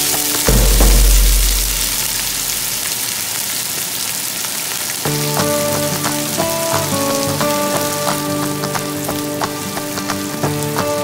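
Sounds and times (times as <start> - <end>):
onions sizzling in oil: 0.0 - 11.0
background music: 5.1 - 11.0.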